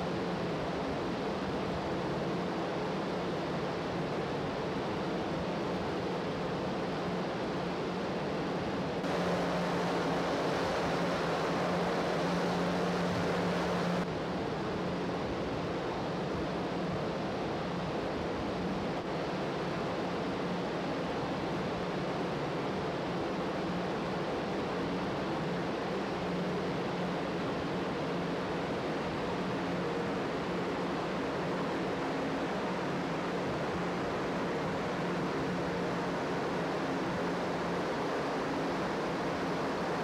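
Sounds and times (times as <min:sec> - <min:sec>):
wind and water rushing: 0:08.5 - 0:14.1, 0:28.9 - 0:40.0
ship engines droning: 0:09.0 - 0:14.0.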